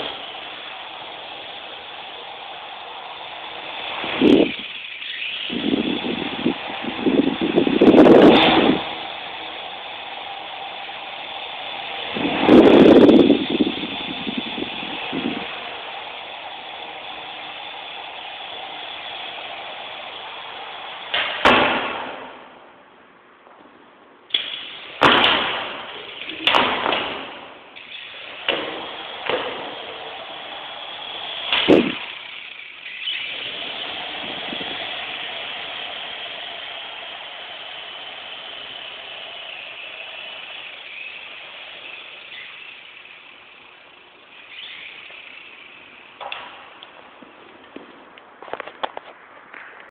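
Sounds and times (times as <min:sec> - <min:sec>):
toy helicopter rotor whining: 0:00.0 - 0:21.4, 0:25.8 - 0:26.6, 0:27.6 - 0:46.8
thumps: 0:21.0 - 0:22.5, 0:24.3 - 0:30.2
sharp knocks: 0:21.1 - 0:22.4, 0:26.4 - 0:27.4.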